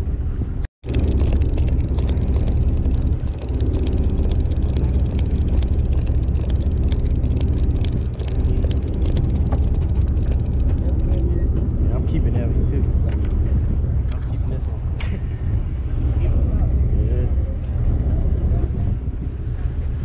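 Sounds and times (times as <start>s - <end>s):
small clicks and ticks: 0.8s - 11.7s
boat engine running: 0.8s - 20.0s.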